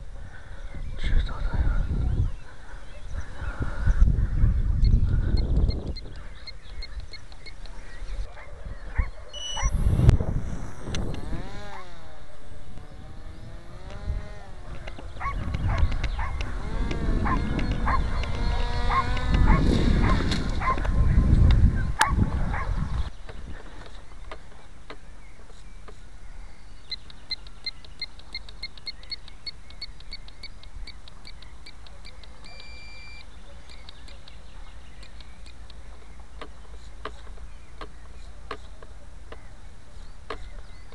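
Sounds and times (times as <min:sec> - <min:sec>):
wind rumbling on microphone: 0:00.0 - 0:26.6
model aircraft motor and propeller: 0:09.6 - 0:21.7
short beep: 0:32.5 - 0:33.3.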